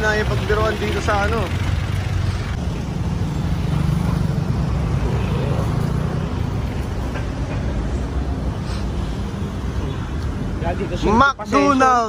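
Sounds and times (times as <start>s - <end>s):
motor scooters passing: 0.0s - 8.8s
road noise from passing cars: 0.0s - 12.0s.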